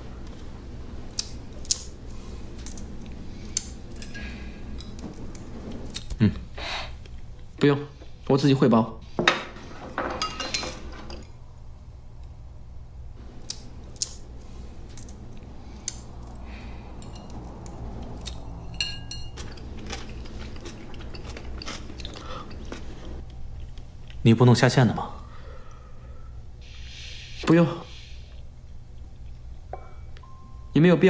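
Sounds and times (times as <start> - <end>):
faint low hum: 0.0 - 31.0
chopsticks tapping porcelain bowls: 17.0 - 22.8
ringing clinks: 29.8 - 30.8.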